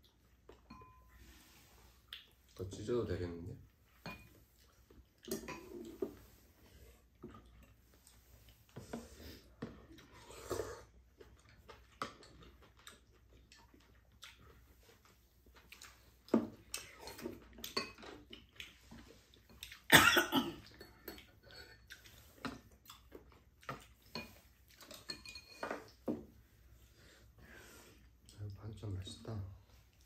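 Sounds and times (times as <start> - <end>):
chewing and slurping: 3.9 - 19.9, 20.6 - 27.4.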